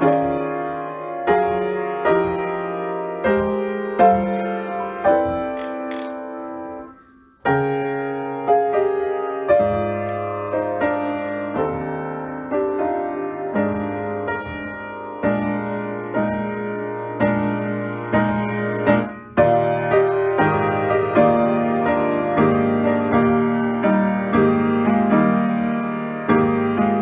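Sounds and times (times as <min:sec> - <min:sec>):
piano chords: 0:00.0 - 0:27.0.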